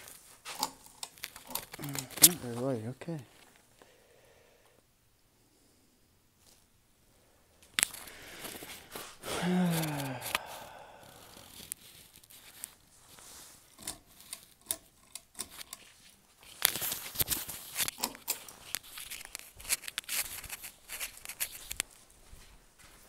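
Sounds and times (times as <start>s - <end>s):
clicks and rustles: 0.0s - 3.7s, 7.6s - 22.0s.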